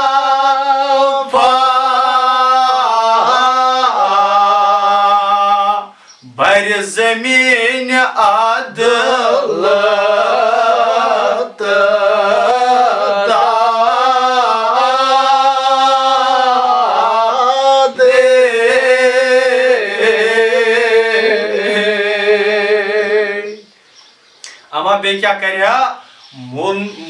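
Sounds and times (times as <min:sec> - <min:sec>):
man chanting elegy: 0:24.8 - 0:27.0.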